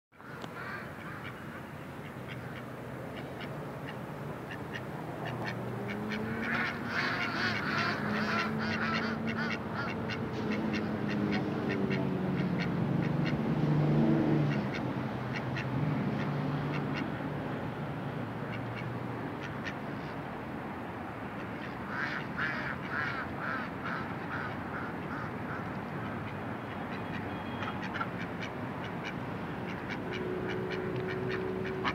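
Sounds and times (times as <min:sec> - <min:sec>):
ducks quacking: 0:00.6 - 0:13.4, 0:18.4 - 0:20.1, 0:21.4 - 0:31.9.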